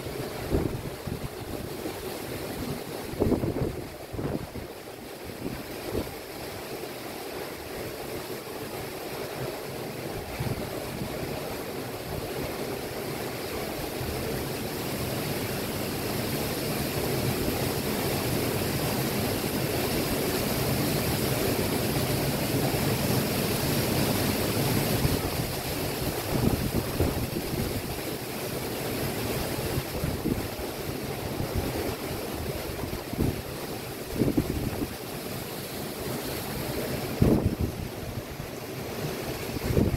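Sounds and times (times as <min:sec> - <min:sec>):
wind gusting on microphone: 0:00.0 - 0:06.2, 0:24.9 - 0:28.2, 0:29.6 - 0:35.1, 0:36.2 - 0:39.9.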